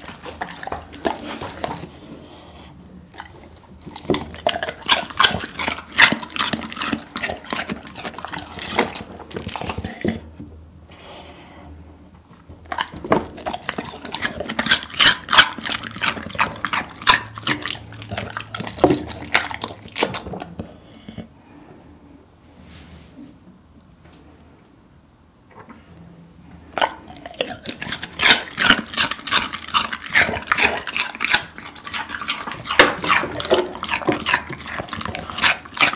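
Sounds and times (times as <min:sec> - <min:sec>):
dog crunching cucumber: 0:00.0 - 0:10.4, 0:12.6 - 0:21.3, 0:26.7 - 0:35.9.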